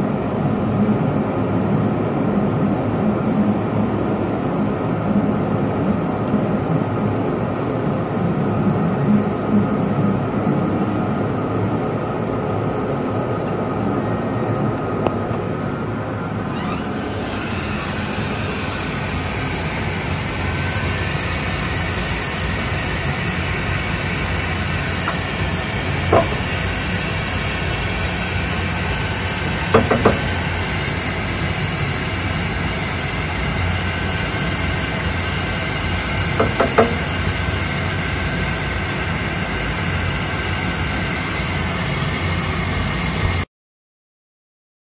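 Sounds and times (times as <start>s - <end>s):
laser cutter humming: 15.5s - 43.4s
high hiss: 16.5s - 43.4s.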